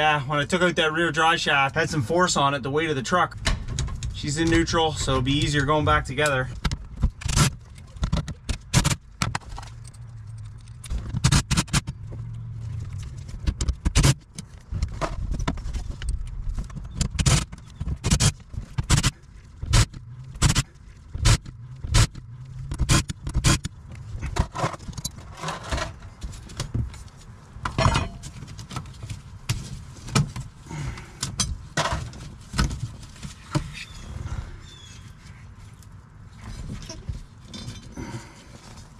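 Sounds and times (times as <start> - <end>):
clinks and scrapes of tools: 9.3 - 11.9, 24.0 - 26.5, 27.7 - 29.0, 36.4 - 38.9.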